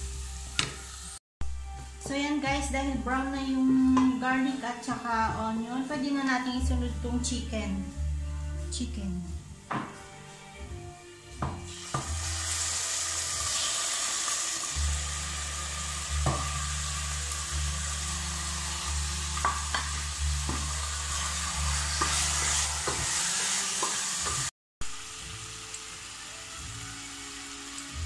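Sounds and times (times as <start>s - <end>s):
chicken sizzling in hot oil: 0.0s - 1.2s, 11.6s - 28.0s
wooden spoon scraping pot: 20.8s - 23.5s.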